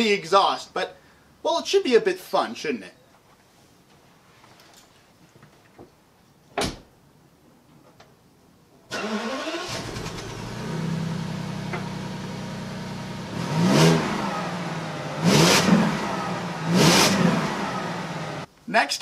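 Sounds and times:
car engine starting and idling: 0:08.9 - 0:18.5
engine revving: 0:09.0 - 0:18.5.

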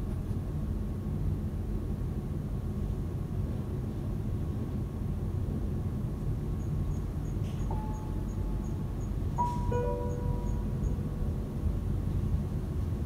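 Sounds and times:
low rumbling ambient drone: 0:00.0 - 0:13.0
held electronic tone: 0:07.7 - 0:08.8, 0:09.4 - 0:11.1.

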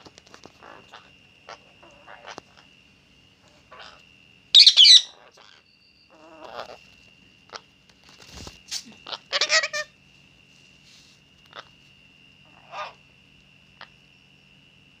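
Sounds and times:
parakeet screeching: 0:04.6 - 0:06.8, 0:09.0 - 0:09.9, 0:12.5 - 0:13.0
soft bird chirps: 0:04.6 - 0:07.6.

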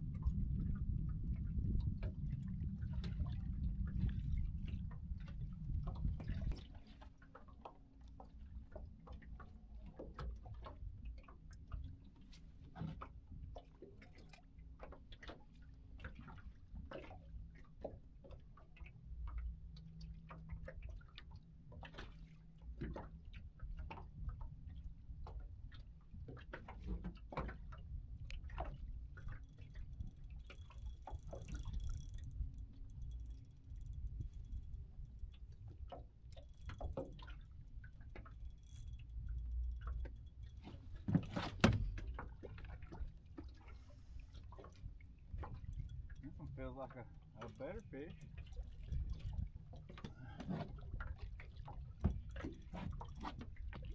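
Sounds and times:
low rumble: 0:00.0 - 0:06.5
waves lapping against boat hull: 0:00.0 - 0:53.9
knock on boat: 0:41.1 - 0:42.0.

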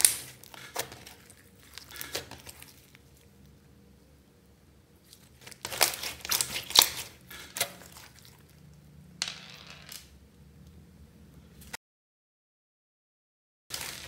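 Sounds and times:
slime crackling and popping: 0:00.0 - 0:03.1, 0:05.2 - 0:08.2.

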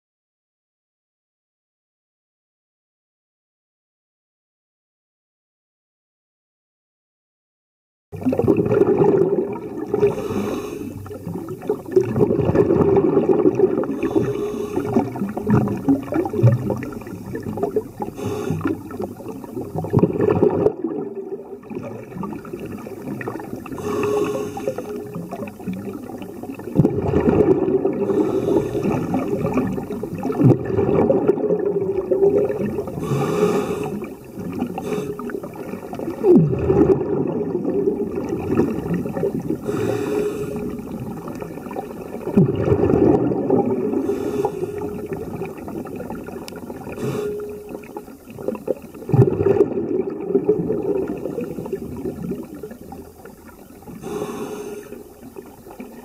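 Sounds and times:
exhaust bubbles rumbling: 0:08.2 - 0:54.4
regulator inhale hiss: 0:10.0 - 0:11.1, 0:14.0 - 0:15.2, 0:18.2 - 0:19.0, 0:23.8 - 0:25.1, 0:28.0 - 0:29.4, 0:33.0 - 0:34.2, 0:34.8 - 0:35.4, 0:39.6 - 0:40.9, 0:44.0 - 0:45.1, 0:46.9 - 0:47.8, 0:54.0 - 0:55.2.

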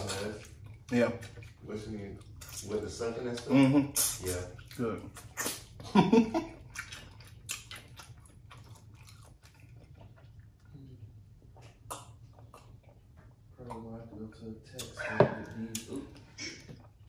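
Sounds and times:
sucking and chewing: 0:00.0 - 0:17.0
wet mouth smacks and clicks: 0:05.1 - 0:05.7, 0:11.6 - 0:13.0.

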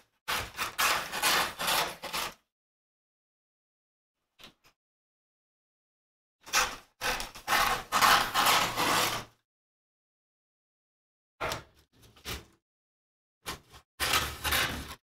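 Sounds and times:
scissors cutting paper: 0:00.3 - 0:02.4, 0:06.4 - 0:09.3, 0:13.5 - 0:15.0.

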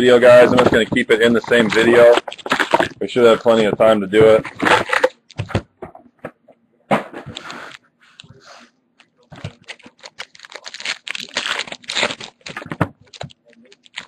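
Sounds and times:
card pack wrappers crinkling: 0:00.0 - 0:05.3, 0:09.3 - 0:14.0.

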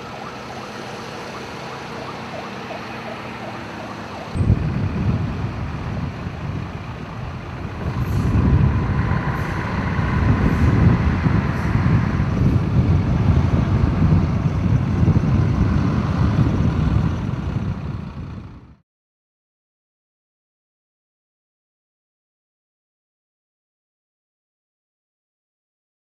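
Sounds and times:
heavy road vehicles rumbling: 0:00.0 - 0:18.8.

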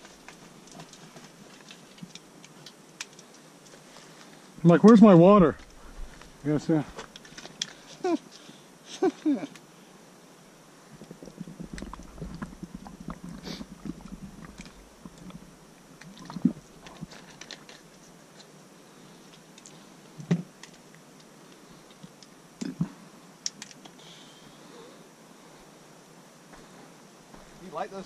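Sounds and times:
gear handling clicks and rustling: 0:00.0 - 0:04.4, 0:07.0 - 0:08.0, 0:16.8 - 0:18.6, 0:23.4 - 0:24.0.

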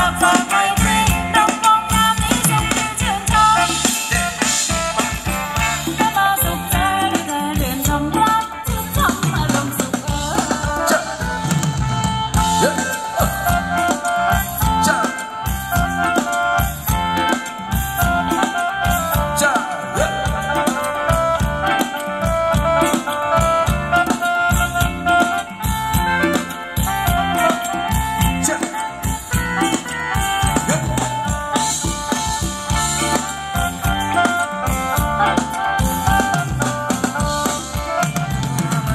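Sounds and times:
held melody line: 0:00.0 - 0:38.9
live band playing dance music: 0:00.0 - 0:38.9
steady drum beat: 0:00.0 - 0:38.9.

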